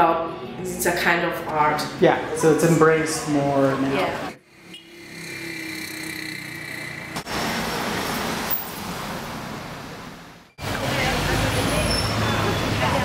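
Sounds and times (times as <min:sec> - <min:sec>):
cars passing on street: 0:00.0 - 0:13.0.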